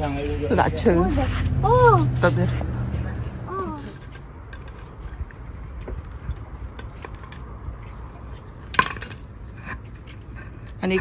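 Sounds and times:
knife scraping concrete: 0:08.3 - 0:11.0.

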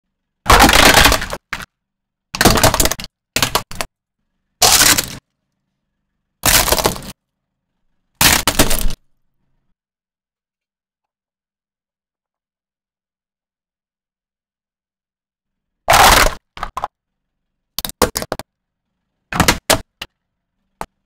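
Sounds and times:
tyre crushing plastic: 0:00.5 - 0:01.7, 0:02.4 - 0:03.9, 0:04.6 - 0:05.2, 0:06.4 - 0:07.2, 0:08.2 - 0:09.0.

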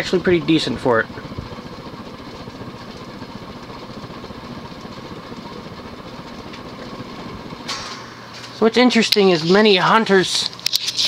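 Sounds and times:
ceiling fan running: 0:00.0 - 0:11.0.

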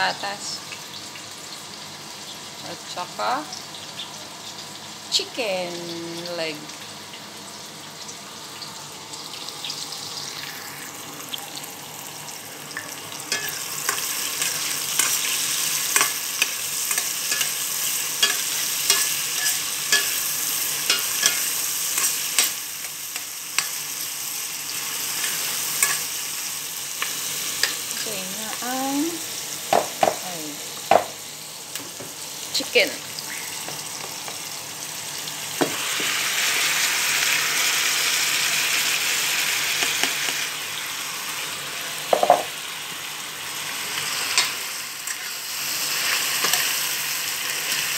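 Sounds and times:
onions sizzling in hot oil: 0:00.0 - 0:47.9
knocks on pot: 0:29.7 - 0:30.2, 0:30.9 - 0:31.1, 0:42.1 - 0:42.5.

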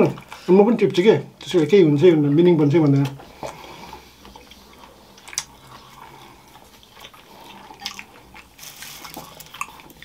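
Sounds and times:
quiet chewing: 0:02.9 - 0:10.0
crisps crunching: 0:05.2 - 0:10.0
crisps rustling: 0:06.7 - 0:10.0.

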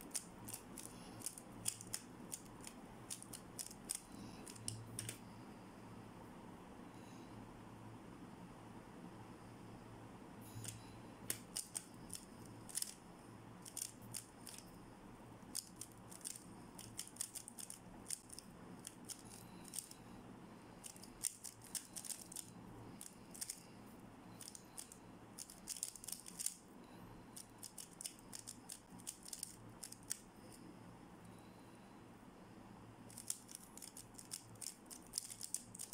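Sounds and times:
puzzle cube plastic clicks: 0:00.0 - 0:05.2, 0:10.6 - 0:13.0, 0:13.6 - 0:14.6, 0:15.4 - 0:20.0, 0:20.8 - 0:23.6, 0:24.4 - 0:26.6, 0:27.4 - 0:30.3, 0:33.1 - 0:35.9.

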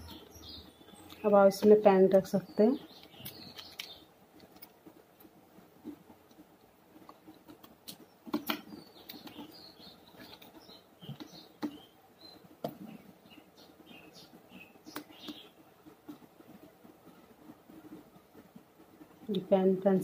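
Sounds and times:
plastic pens clicking: 0:03.0 - 0:04.8.

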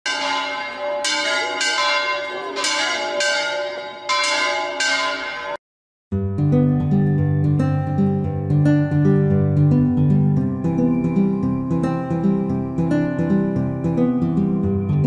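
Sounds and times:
church bells ringing: 0:00.1 - 0:05.6.

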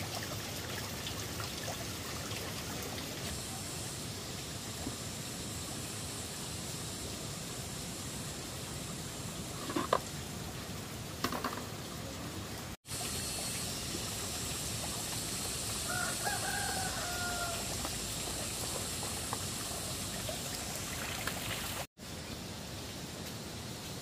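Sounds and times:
background hiss: 0:00.0 - 0:24.0
rooster crowing: 0:15.8 - 0:17.8.

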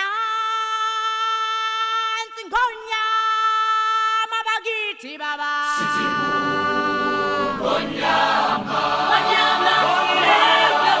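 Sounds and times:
choir singing long chords: 0:05.8 - 0:11.0.

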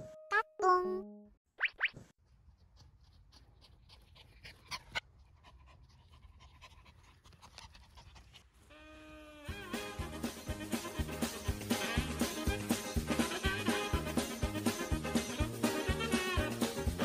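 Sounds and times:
music: 0:00.0 - 0:01.3, 0:09.5 - 0:17.0
dog panting: 0:02.5 - 0:08.6, 0:11.2 - 0:12.0.

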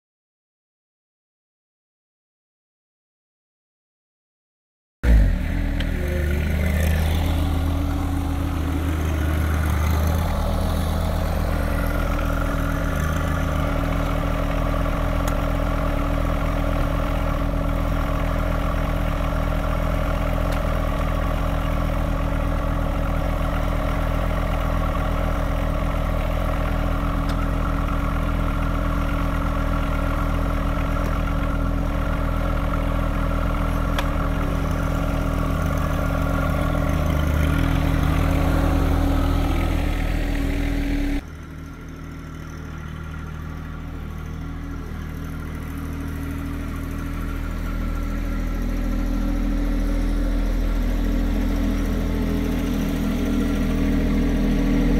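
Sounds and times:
tractor diesel engine running: 0:05.0 - 0:54.9.

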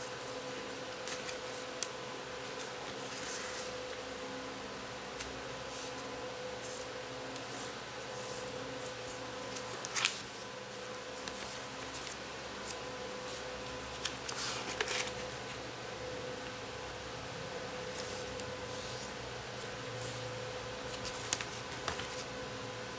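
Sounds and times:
steady hum: 0:00.0 - 0:22.9
paper rustling and crinkling: 0:00.1 - 0:01.8, 0:02.4 - 0:04.0, 0:05.2 - 0:15.6, 0:17.9 - 0:20.2, 0:20.8 - 0:22.3.

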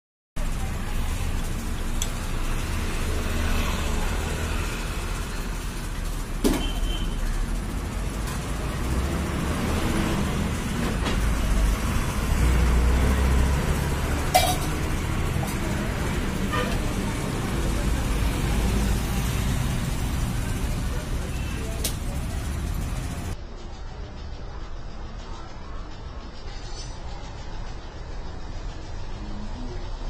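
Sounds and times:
metal utensils clinking: 0:13.5 - 0:17.0.

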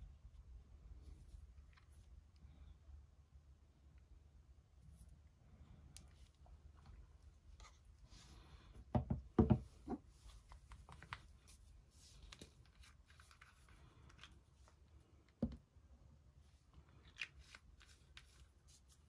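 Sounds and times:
objects knocking on a mat: 0:08.9 - 0:09.7.

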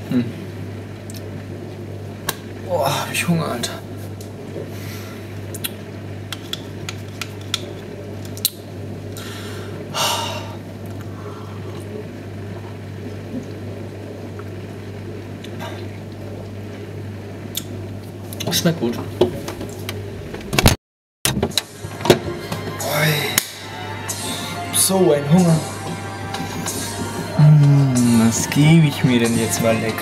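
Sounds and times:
steady low hum: 0:00.0 - 0:30.0.

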